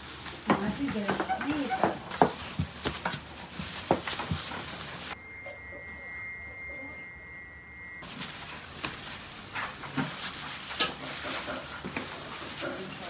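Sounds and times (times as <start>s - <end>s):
high-pitched tone: 5.1s - 9.4s.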